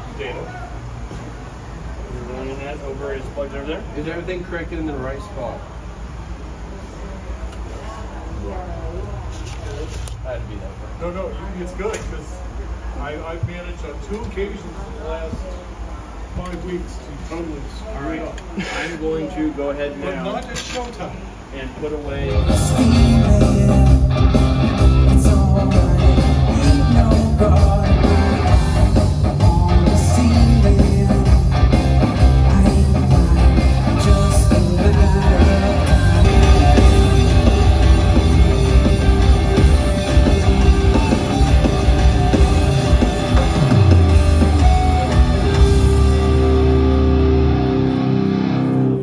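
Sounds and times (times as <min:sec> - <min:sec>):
rock band playing live: 0:22.3 - 0:49.0.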